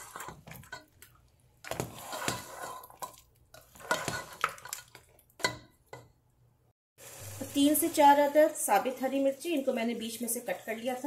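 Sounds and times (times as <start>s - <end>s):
spoon stirring and scraping pot: 0.0s - 6.2s.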